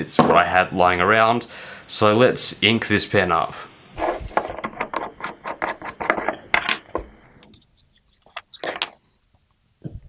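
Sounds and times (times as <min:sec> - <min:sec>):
plastic cap unscrewing from bottle: 0:04.0 - 0:06.4
short scraping: 0:04.0 - 0:06.5.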